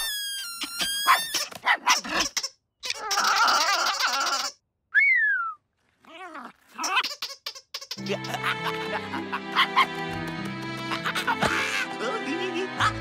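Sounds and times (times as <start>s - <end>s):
cartoon puppy yips and barks: 0.0s - 4.5s.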